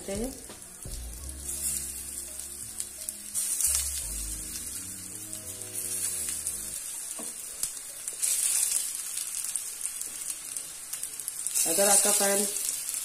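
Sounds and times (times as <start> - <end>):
cutlets sizzling in oil: 0.0 - 13.0.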